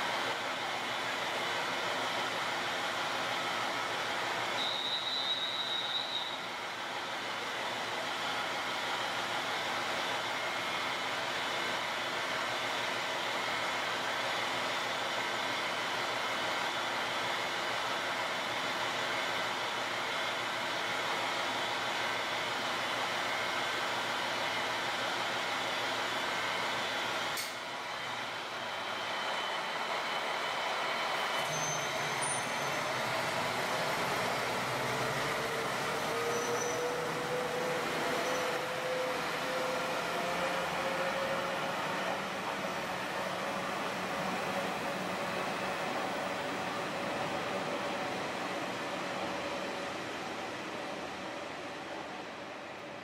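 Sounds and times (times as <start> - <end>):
brief high-pitched squeal: 4.6 - 6.5, 31.3 - 33.0, 36.2 - 37.1, 38.1 - 38.7
single click: 27.4 - 27.6.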